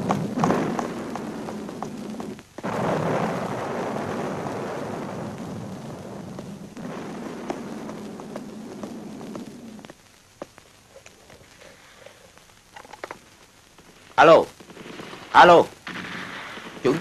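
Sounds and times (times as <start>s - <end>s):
sharp cracks: 0.0s - 17.0s
steady rushing noise: 0.0s - 17.0s.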